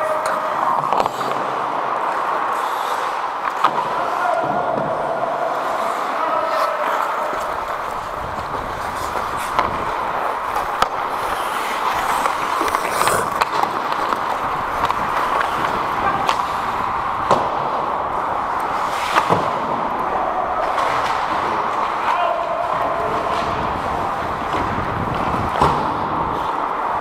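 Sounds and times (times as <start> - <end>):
hockey sticks and puck clacking: 0.0 - 27.0
skate blades scraping on ice: 5.6 - 27.0
steady rushing noise: 7.1 - 27.0.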